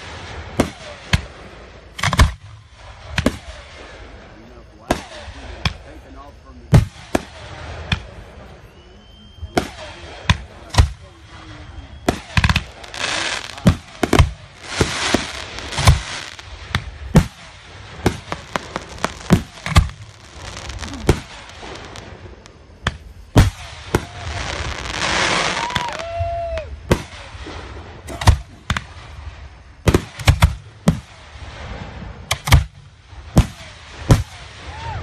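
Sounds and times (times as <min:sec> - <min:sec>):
fireworks bangs: 0:00.0 - 0:35.0
hiss of burning sparks: 0:12.1 - 0:26.1.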